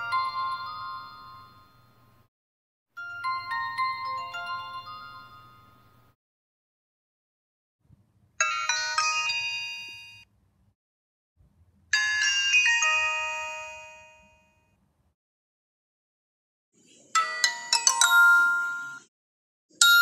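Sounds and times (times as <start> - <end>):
phone chime melody: 3.0 - 6.0, 8.4 - 10.3, 17.2 - 19.1.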